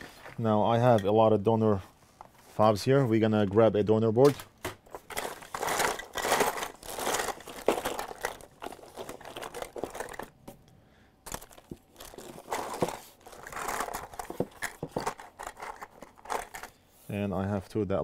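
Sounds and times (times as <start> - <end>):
plastic bag crinkling: 4.9 - 10.4, 11.3 - 16.8.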